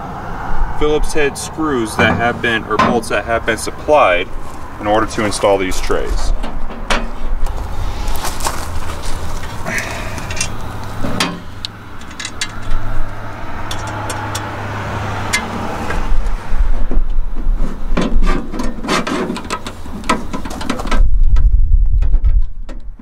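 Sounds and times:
low rumble: 0.0s - 17.6s.

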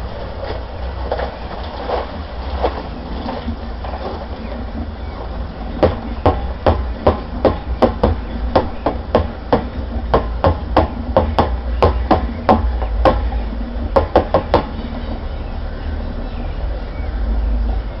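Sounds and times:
knocks on mixer drum: 5.8s - 13.3s, 14.0s - 14.7s.

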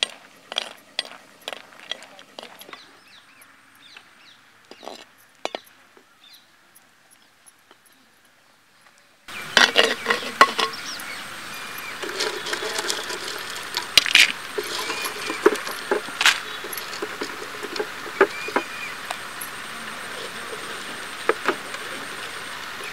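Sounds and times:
hot oil sizzling: 9.3s - 22.9s
sharp clinks: 9.5s - 19.6s.

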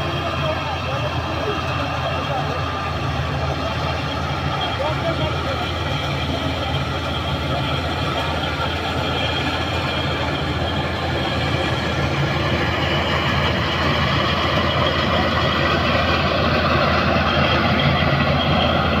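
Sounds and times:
combine harvester engine drone: 0.0s - 19.0s.

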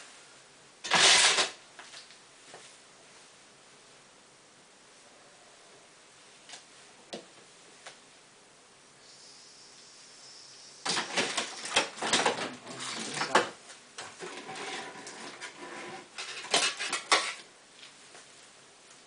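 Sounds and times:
hard objects clattering: 10.8s - 17.5s.

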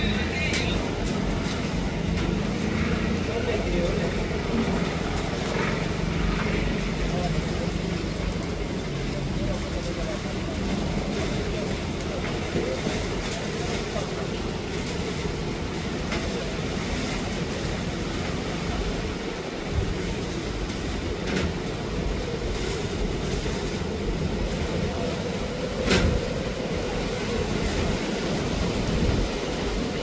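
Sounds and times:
gusty wind buffeting microphone: 0.0s - 30.0s.

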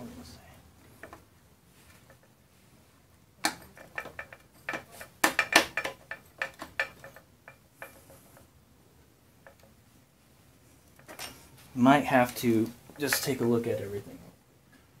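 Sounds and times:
metal parts clicking and knocking: 3.4s - 8.5s, 9.4s - 9.8s, 10.9s - 11.4s, 13.0s - 13.5s.

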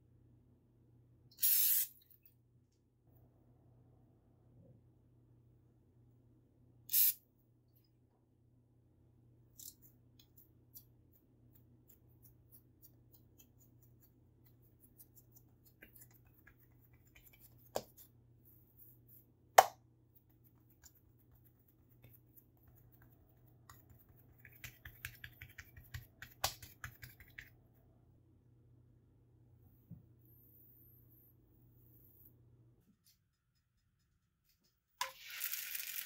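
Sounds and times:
hands patting dough: 10.2s - 27.7s.

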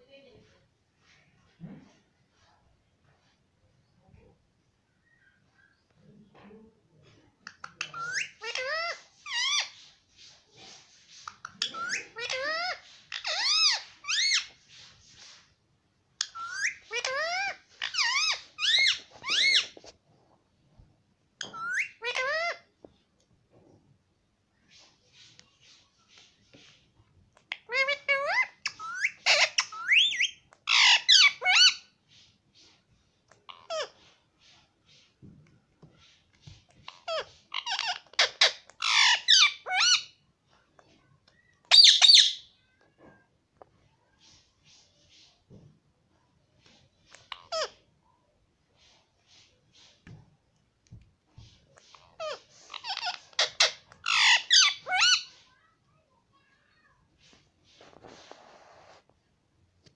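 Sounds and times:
parakeet vocalizing: 7.5s - 9.9s, 10.7s - 14.6s, 16.2s - 19.8s, 21.4s - 22.7s, 27.4s - 31.8s, 33.4s - 34.2s, 36.7s - 40.2s, 41.6s - 42.5s, 47.1s - 47.8s, 51.4s - 55.4s
parakeet sharp calls: 41.7s - 42.4s, 51.9s - 55.4s.

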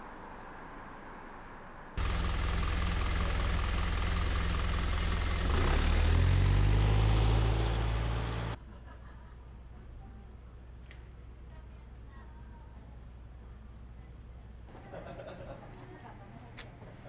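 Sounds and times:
bus engine revving: 2.0s - 8.6s.

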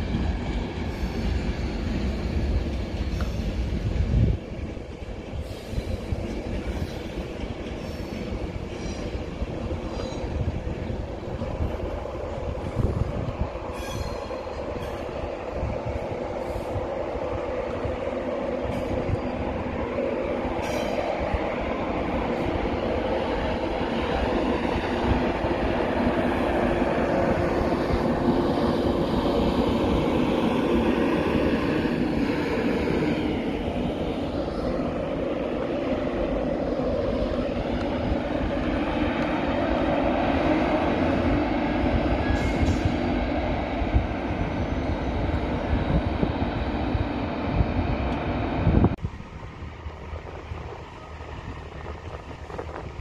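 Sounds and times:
train wheels rumbling on rail: 0.0s - 53.0s
train whine: 0.0s - 53.0s.

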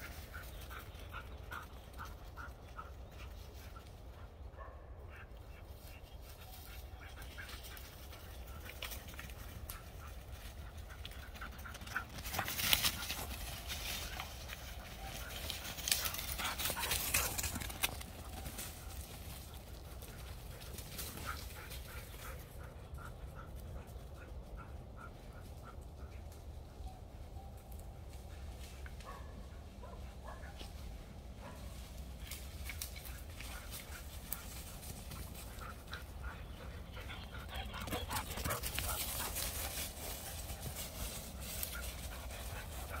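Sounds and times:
dog paws rustling dry leaves: 11.8s - 21.8s, 37.7s - 43.0s
dog panting: 19.6s - 26.2s, 33.5s - 43.0s.

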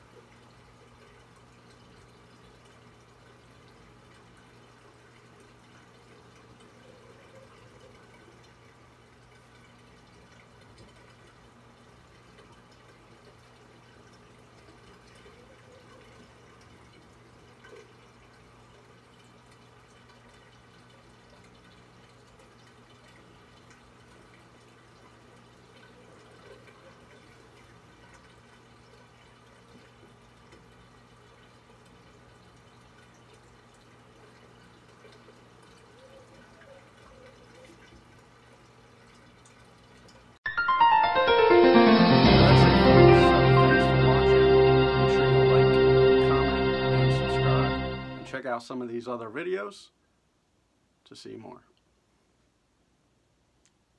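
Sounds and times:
water trickling and dripping: 0.0s - 40.4s.

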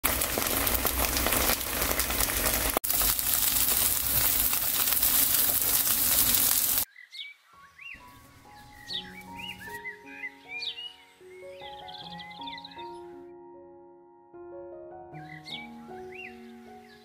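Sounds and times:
tofu sizzling in oil: 0.0s - 6.9s.

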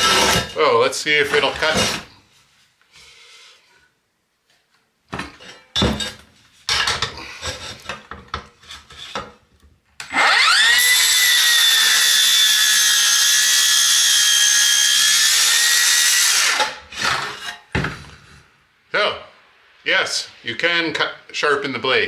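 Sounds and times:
circular saw cutting steel: 0.0s - 0.6s, 10.1s - 17.6s
knocks and clatter of handling: 4.5s - 9.8s.

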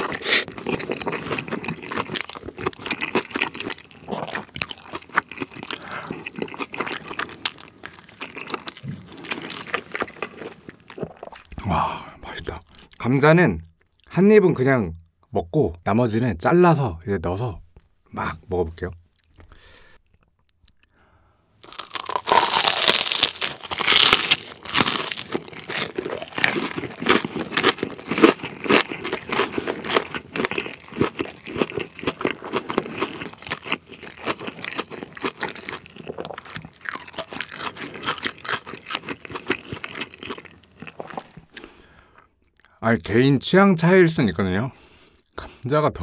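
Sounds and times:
crunchy chewing: 0.0s - 11.6s, 21.6s - 42.7s
crunchy bite into fried food: 21.6s - 41.7s.

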